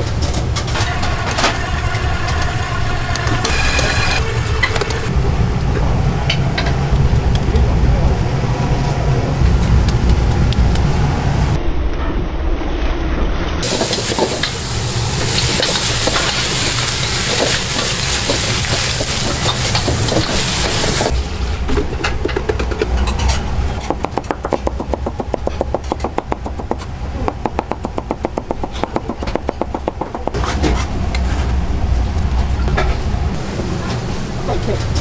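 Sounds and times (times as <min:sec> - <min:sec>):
hot oil sizzling: 0:00.8 - 0:04.6, 0:13.6 - 0:21.3
knife chopping on cutting board: 0:23.9 - 0:30.4.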